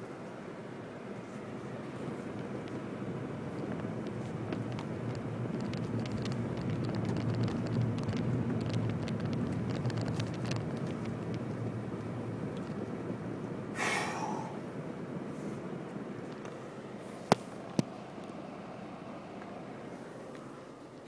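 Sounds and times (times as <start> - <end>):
car engine and tyres rumbling: 0.0 - 21.0
grit crackling under tyres: 0.0 - 21.0.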